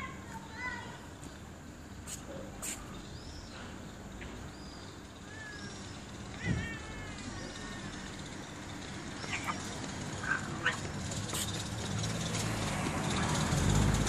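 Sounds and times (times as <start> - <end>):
cats yowling: 6.3 - 8.0, 9.2 - 11.0.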